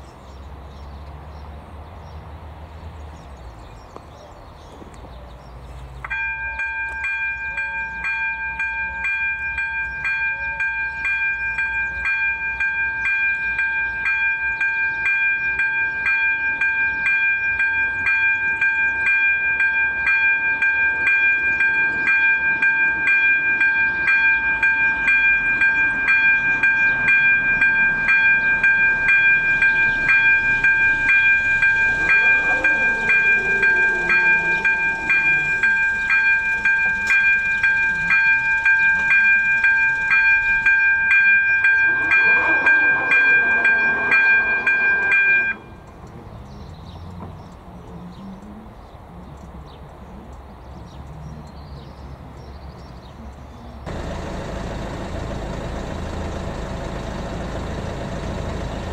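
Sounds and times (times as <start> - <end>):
level-crossing bell ringing: 6.1 - 46.0.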